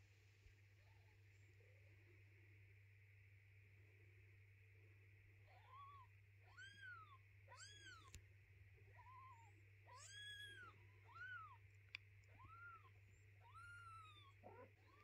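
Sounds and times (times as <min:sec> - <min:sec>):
faint click: 0:11.7 - 0:12.3
kitten mewing: 0:12.3 - 0:15.0.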